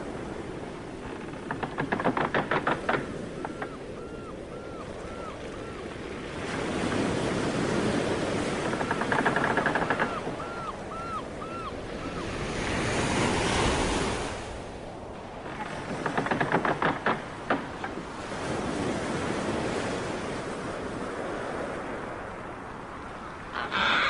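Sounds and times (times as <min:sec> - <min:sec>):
ocean waves surging: 0:00.0 - 0:24.0
short high arching calls: 0:23.5 - 0:24.0.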